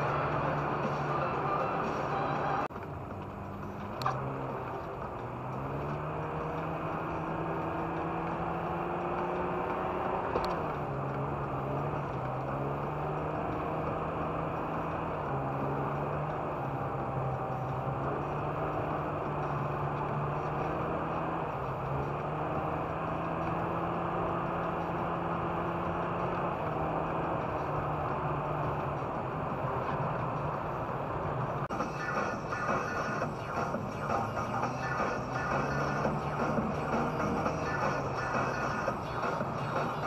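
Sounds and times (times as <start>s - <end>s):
car engine running: 0.0s - 40.0s
tyre and road noise: 0.0s - 40.0s.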